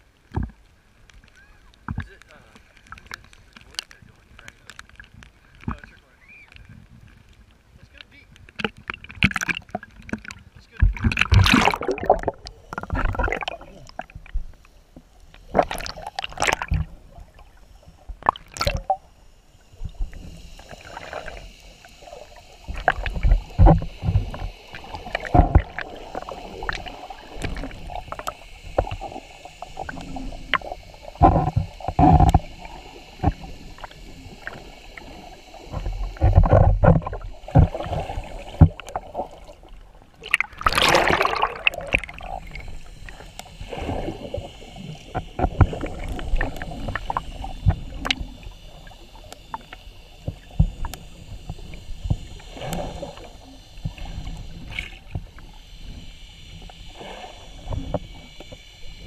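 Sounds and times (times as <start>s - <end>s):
muffled underwater gurgling: 7.8s - 59.0s
water splashing at surface: 8.6s - 14.4s, 22.2s - 42.9s
faint high hum: 9.8s - 59.0s.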